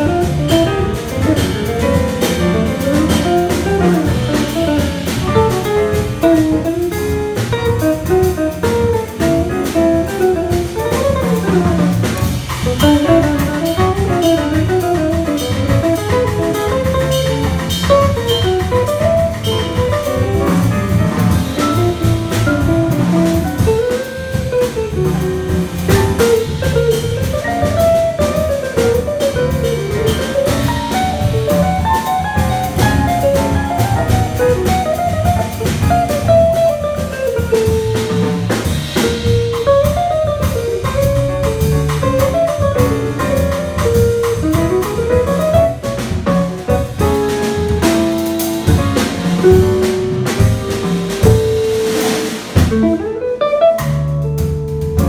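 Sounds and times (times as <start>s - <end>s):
jazz quartet playing: 0.0s - 55.0s
guitar melody line: 52.6s - 54.4s.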